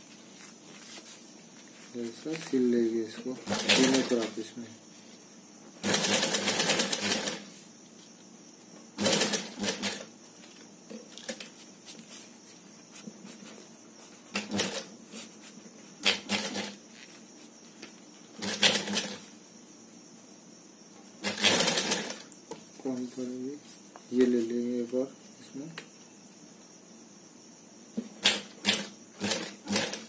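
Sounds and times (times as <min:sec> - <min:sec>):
industrial sewing machine stitching: 0:03.4 - 0:04.3, 0:05.8 - 0:07.5, 0:09.0 - 0:10.1, 0:14.3 - 0:14.9, 0:16.0 - 0:16.8, 0:18.4 - 0:19.2, 0:21.2 - 0:22.3, 0:28.2 - 0:30.0.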